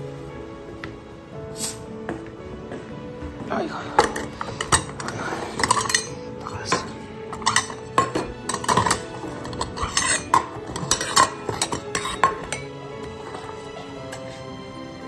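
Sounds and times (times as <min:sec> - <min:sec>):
metal bowls clinking on a table: 0:04.0 - 0:14.5.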